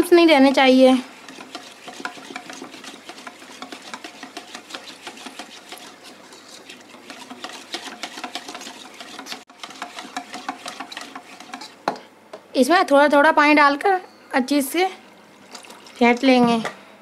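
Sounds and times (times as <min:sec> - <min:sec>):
whisk ticking against metal bowl: 0:00.4 - 0:11.8.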